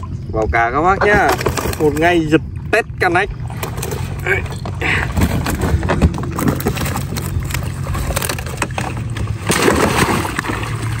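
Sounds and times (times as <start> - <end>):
splash in water: 9.3 - 11.0.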